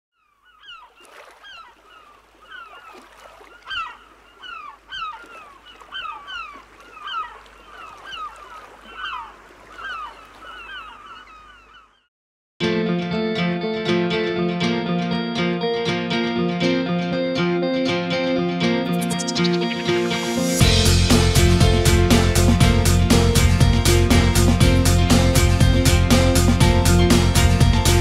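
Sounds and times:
birds calling: 0:00.2 - 0:12.1.

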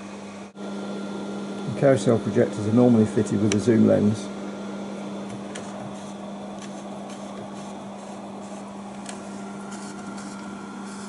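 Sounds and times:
projector cooling fan humming: 0:00.0 - 0:11.0.

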